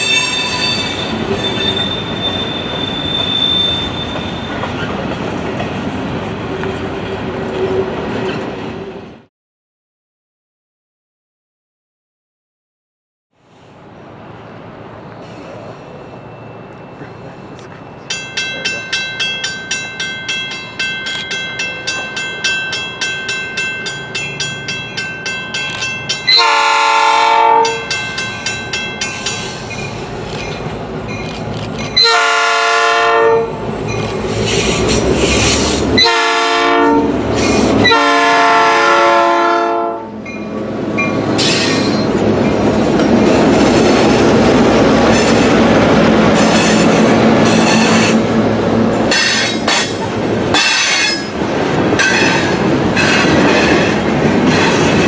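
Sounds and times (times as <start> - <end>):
crossing bell ringing: 0.0 - 4.9, 15.6 - 33.2, 33.8 - 34.3, 40.0 - 43.2, 49.0 - 51.4, 52.0 - 55.0
steel wheels on rails: 0.0 - 8.9, 14.3 - 26.7, 27.6 - 32.2, 33.5 - 36.2, 37.1 - 38.0, 40.1 - 55.0
locomotive engine drone: 13.4 - 32.5, 39.9 - 55.0
locomotive horn blasts: 26.3 - 27.9, 32.0 - 33.6, 36.0 - 37.2, 37.8 - 40.2.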